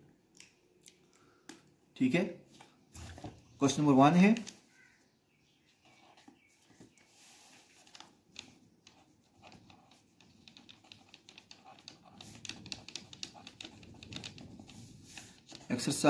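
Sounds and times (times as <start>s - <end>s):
pencil scratching on paper: 8.4s - 16.0s.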